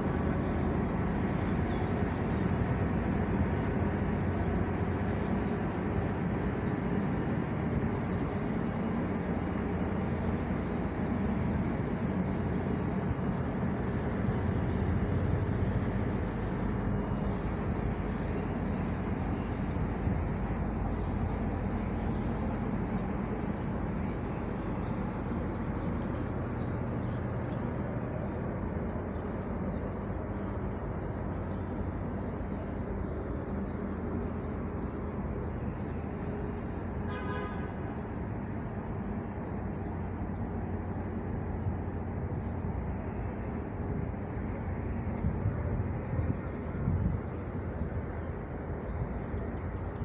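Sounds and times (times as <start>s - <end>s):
tugboat diesel engine rumble: 0.0s - 50.0s.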